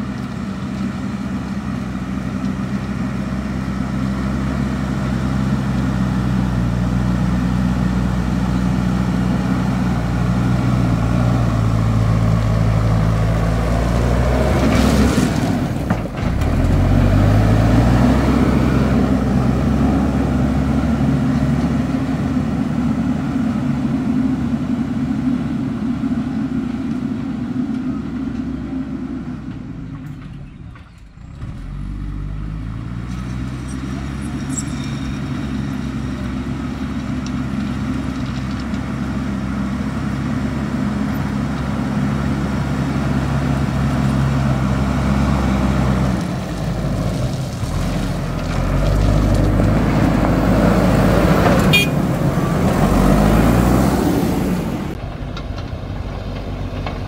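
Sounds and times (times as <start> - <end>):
diesel engine running hard: 0.0 - 57.0
bucket pushing gravel: 46.1 - 52.2.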